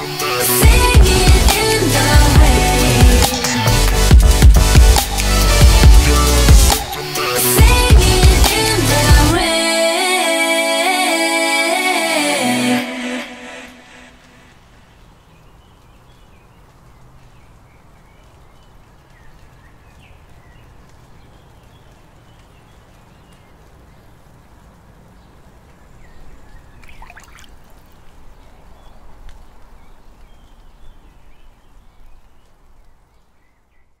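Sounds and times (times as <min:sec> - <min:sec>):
faint outdoor ambience: 0:00.0 - 0:34.0
birds chirping: 0:14.8 - 0:34.0.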